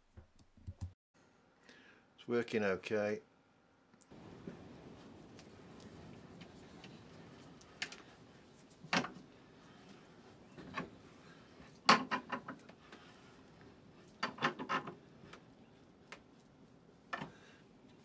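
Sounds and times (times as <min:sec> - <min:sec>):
bench vise clicking and creaking: 0:11.8 - 0:13.0, 0:14.1 - 0:15.4.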